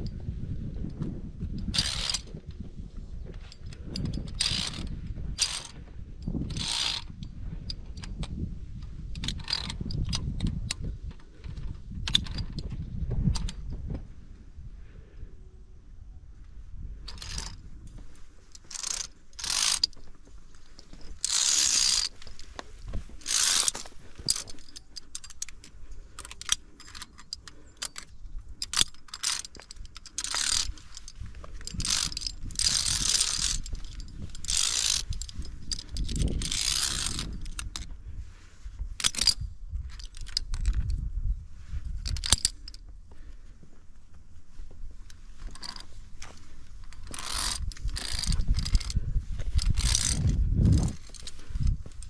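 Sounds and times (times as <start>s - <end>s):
carabiners clinking: 0.8s - 2.6s, 3.2s - 13.8s, 17.0s - 38.0s, 39.0s - 41.1s, 41.8s - 43.3s, 45.0s - 52.0s
carabiners scraping steel cable: 0.8s - 2.6s, 3.4s - 13.7s, 17.0s - 38.0s, 38.6s - 41.1s, 41.8s - 43.3s, 45.0s - 52.0s.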